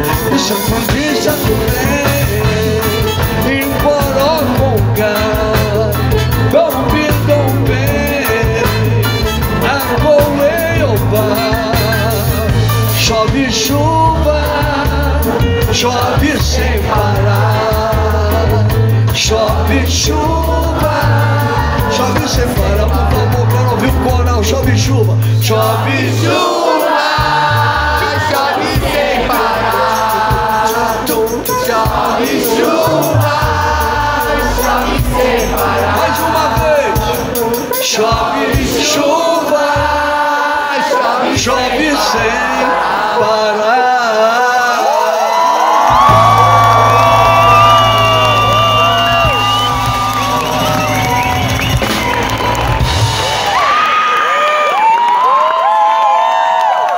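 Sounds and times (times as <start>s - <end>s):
electric bass: 0.0s - 26.4s, 32.9s - 38.7s, 45.8s - 53.7s
drum kit: 0.0s - 40.3s, 45.4s - 54.0s
horns: 0.0s - 43.4s, 45.0s - 54.0s
live band playing groove: 0.0s - 43.5s, 45.2s - 54.1s
audience singing together: 0.0s - 53.0s.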